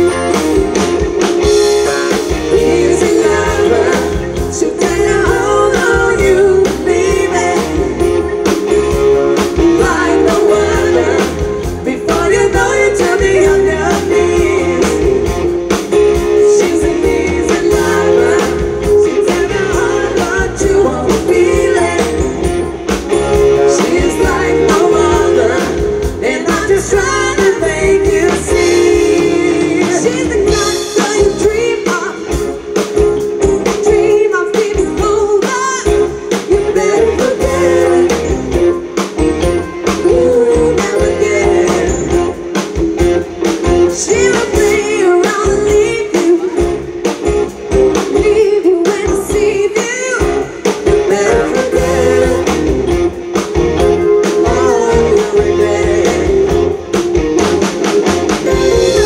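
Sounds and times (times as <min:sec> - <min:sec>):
bass guitar: 0:00.0 - 0:59.0
drums: 0:00.0 - 0:59.0
electric guitar: 0:00.0 - 0:59.0
man and woman singing: 0:01.7 - 0:08.2, 0:09.4 - 0:15.3, 0:16.3 - 0:22.5, 0:23.6 - 0:32.4, 0:33.7 - 0:38.5, 0:39.9 - 0:42.6, 0:43.9 - 0:46.8, 0:48.0 - 0:52.9, 0:54.2 - 0:56.7.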